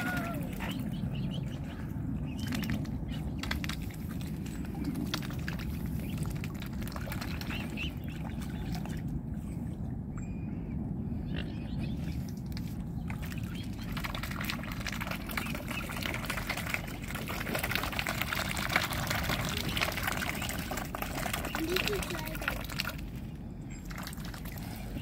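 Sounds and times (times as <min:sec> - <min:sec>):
small splashes in water: 0:00.0 - 0:09.2
low rumble: 0:00.0 - 0:25.0.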